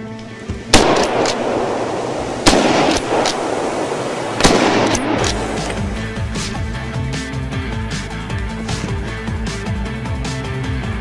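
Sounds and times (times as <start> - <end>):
loud rifle shots with echo: 0.7 - 5.7.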